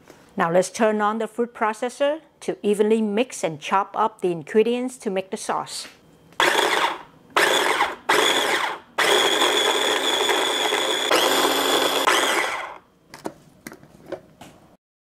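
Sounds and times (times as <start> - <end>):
food processor motor whining: 6.4 - 12.8.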